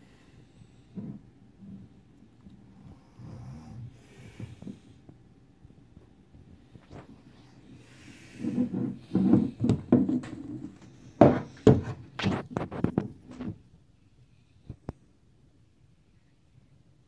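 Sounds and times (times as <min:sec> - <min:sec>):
hard plastic parts rubbing and knocking: 0:08.0 - 0:13.7.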